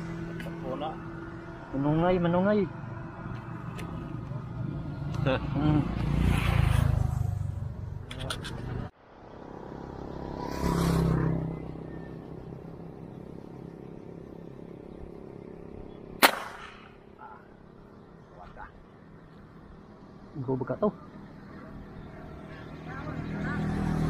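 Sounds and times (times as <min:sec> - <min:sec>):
road traffic rumbling: 0:00.0 - 0:24.0
spear gun firing snap: 0:16.2 - 0:17.0.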